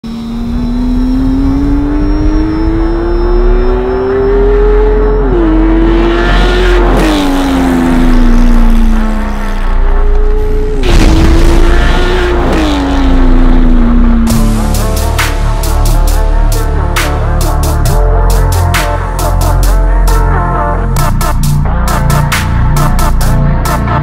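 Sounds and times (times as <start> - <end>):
sports car engine accelerating: 0.0 - 24.0.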